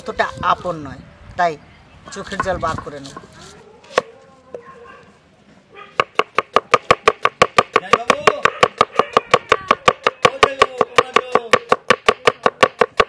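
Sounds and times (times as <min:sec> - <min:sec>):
knife chopping on wooden board: 0:06.0 - 0:13.0.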